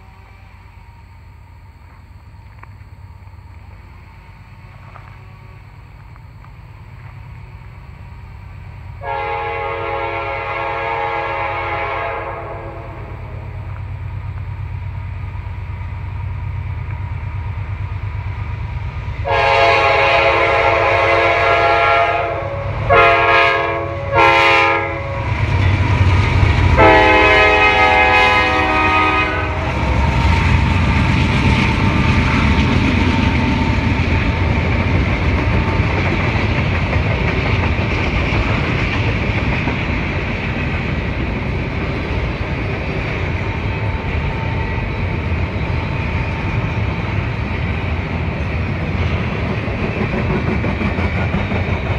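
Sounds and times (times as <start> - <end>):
train cars rumbling and clattering: 0.0 - 51.9
locomotive air horn blasts: 9.0 - 13.4, 19.2 - 25.4, 26.8 - 30.0
diesel engines rumbling: 12.6 - 50.0.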